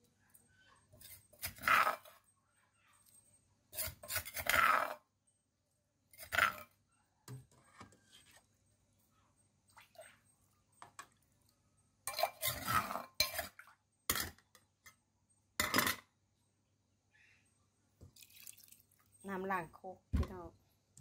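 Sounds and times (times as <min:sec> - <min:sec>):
spoon scraping a mortar: 0:00.8 - 0:02.3, 0:03.0 - 0:05.0, 0:06.1 - 0:06.8, 0:12.1 - 0:14.3.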